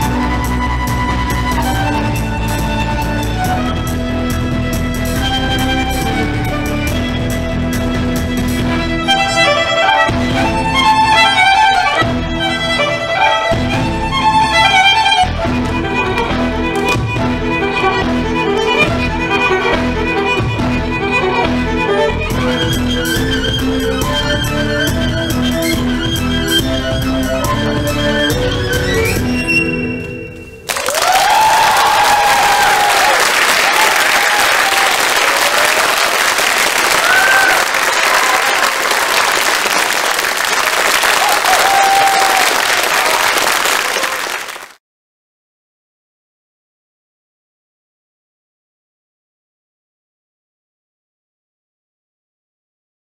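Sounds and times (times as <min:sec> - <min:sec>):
low repeating accompaniment: 0:00.0 - 0:29.4
violin and erhu melody: 0:00.0 - 0:30.2
crowd calling out: 0:30.7 - 0:44.6
audience applauding: 0:30.7 - 0:44.8.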